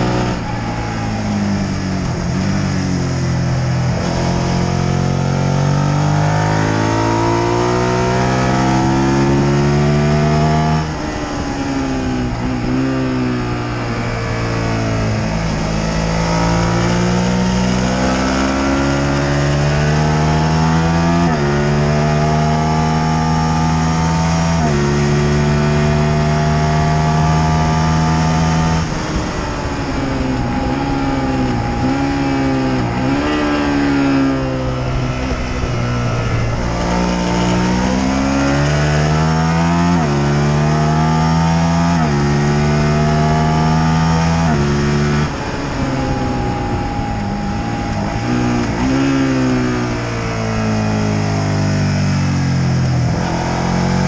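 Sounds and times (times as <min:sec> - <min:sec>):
motorcycle engine accelerating: 0:00.0 - 0:54.0
wind rush: 0:27.3 - 0:40.4, 0:41.2 - 0:52.0.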